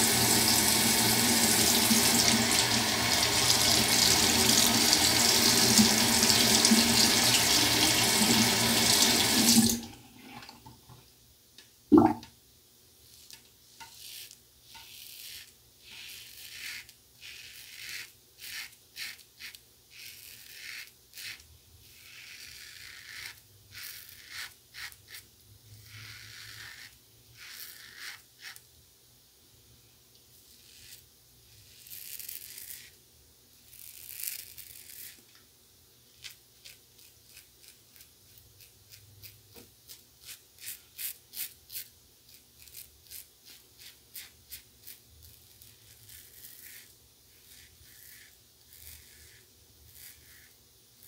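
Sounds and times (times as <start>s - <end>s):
tap running into sink: 11.9s - 12.3s
razor scraping stubble: 13.1s - 28.6s, 30.4s - 33.0s, 33.6s - 35.2s, 36.2s - 50.6s.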